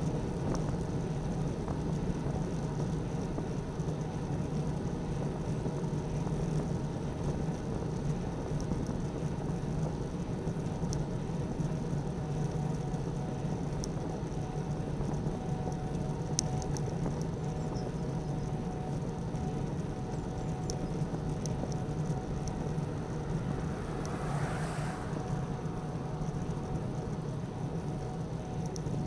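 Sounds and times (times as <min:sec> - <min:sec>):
wind: 0:00.0 - 0:29.0
road rumble: 0:04.8 - 0:29.0.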